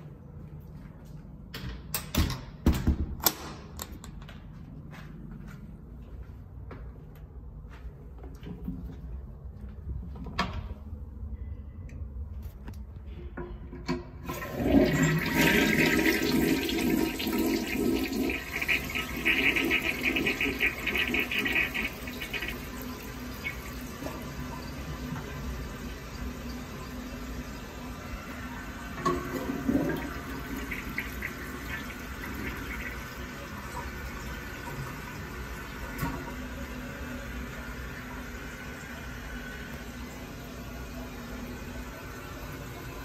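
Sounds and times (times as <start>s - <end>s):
toilet flushing: 13.8s - 43.0s
toilet tank refilling: 13.8s - 43.0s.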